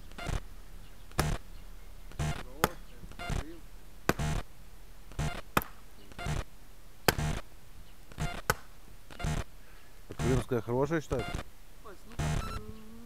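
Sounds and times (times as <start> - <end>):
axe chopping blows: 1.1 - 1.4, 2.2 - 2.9, 4.0 - 4.5, 5.1 - 6.3, 7.0 - 7.4, 8.1 - 8.8.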